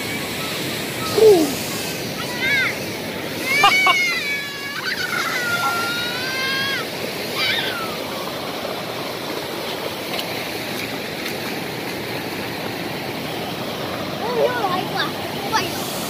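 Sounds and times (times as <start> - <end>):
waterfall rushing over rocks: 0.0 - 16.0
child shouting: 1.0 - 2.8, 3.4 - 8.1.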